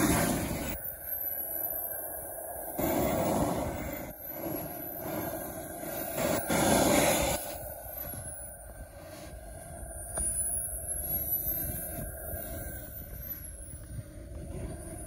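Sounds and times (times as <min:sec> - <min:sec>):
rushing noise: 0:00.0 - 0:00.8
model jet turbine whine: 0:00.0 - 0:15.0.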